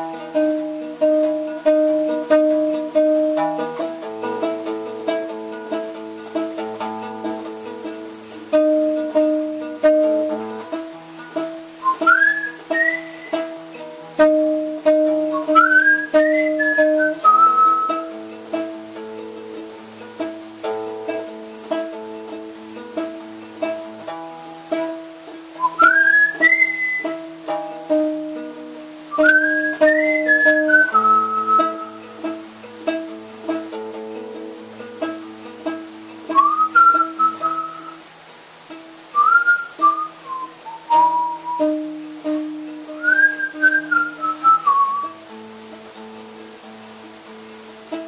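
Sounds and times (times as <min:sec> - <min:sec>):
classical guitar picking: 0:00.0 - 0:48.0
high whistle-like gliding note: 0:11.8 - 0:13.5, 0:25.6 - 0:27.2, 0:29.1 - 0:32.0, 0:36.3 - 0:38.0, 0:39.2 - 0:41.8, 0:43.0 - 0:45.2.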